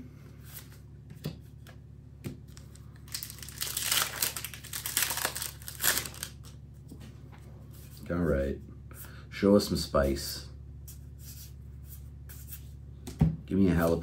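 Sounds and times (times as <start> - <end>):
foil wrapper tearing and crinkling: 2.5 - 6.6.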